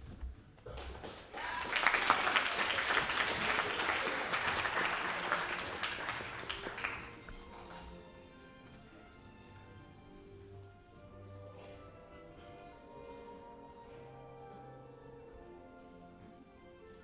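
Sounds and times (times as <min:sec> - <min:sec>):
audience applauding: 0:00.7 - 0:07.9.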